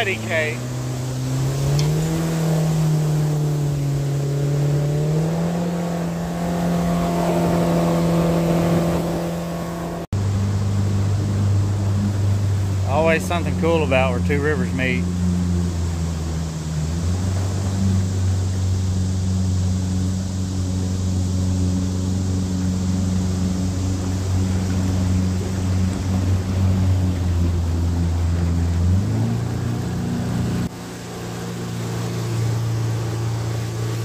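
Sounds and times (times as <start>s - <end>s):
outboard motor running: 0.0s - 34.0s
water rushing past hull: 0.0s - 34.0s.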